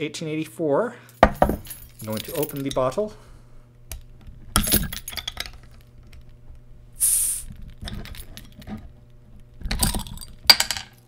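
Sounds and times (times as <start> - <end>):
soda bottle gas hiss: 7.0 - 7.5.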